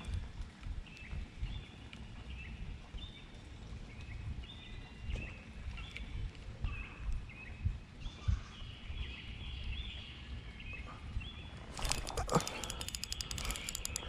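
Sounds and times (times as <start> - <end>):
birds chirping: 0.7 - 14.0
fishing reel clicking rapidly: 11.8 - 14.0.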